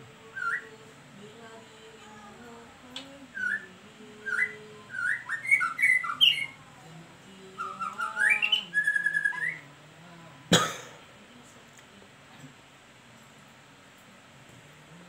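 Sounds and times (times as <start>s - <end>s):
bird singing whistled phrases: 0.3s - 0.7s, 3.4s - 6.6s, 7.6s - 9.6s.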